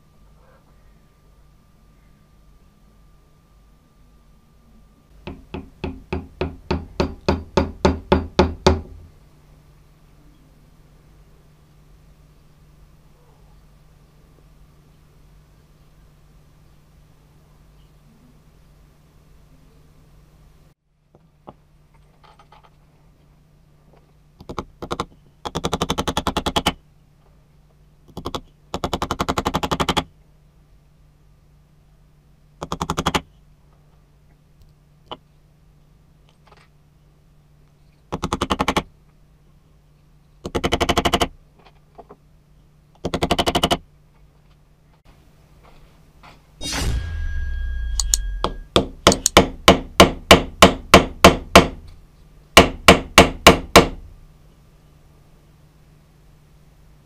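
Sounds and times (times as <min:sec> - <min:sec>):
rapid machine-like striking: 0:46.6 - 0:50.1.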